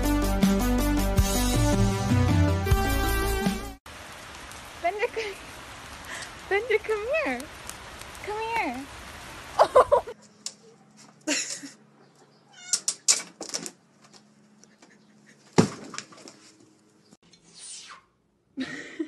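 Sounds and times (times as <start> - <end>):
cat meowing: 12.5 - 12.9.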